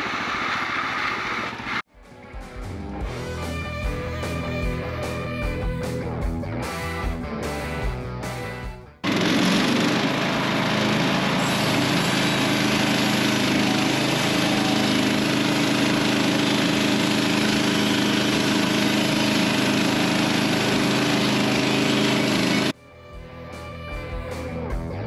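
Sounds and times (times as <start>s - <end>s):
bandsaw mill cutting log: 0.0s - 1.8s, 9.0s - 22.8s.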